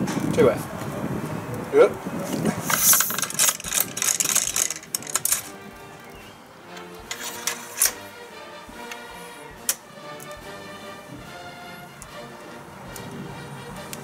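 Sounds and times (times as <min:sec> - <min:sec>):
clicks and rustles of handling gear: 0:02.6 - 0:06.2, 0:06.8 - 0:08.0
background music with held notes: 0:03.7 - 0:14.0.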